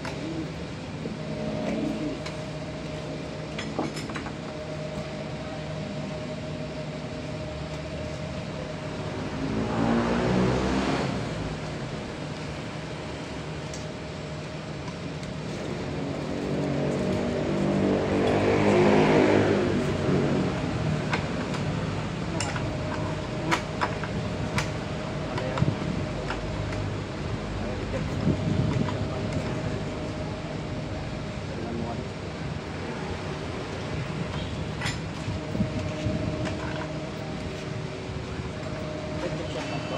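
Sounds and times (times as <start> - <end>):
vehicle engine passing: 8.8 - 12.2, 15.8 - 25.3.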